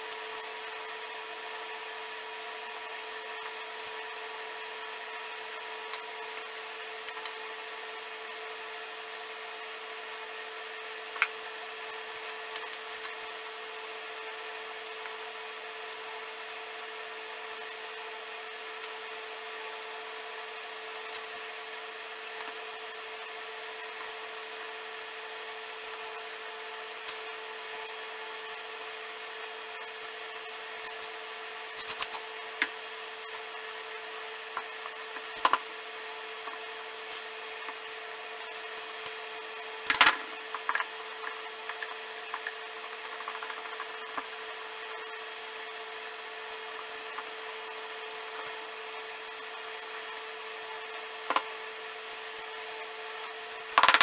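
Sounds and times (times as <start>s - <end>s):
steady background hum: 0.0s - 54.0s.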